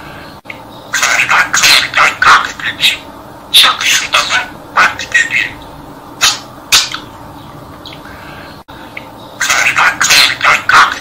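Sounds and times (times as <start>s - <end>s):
budgerigar chattering: 0.9s - 5.6s, 6.2s - 7.1s, 9.4s - 11.0s.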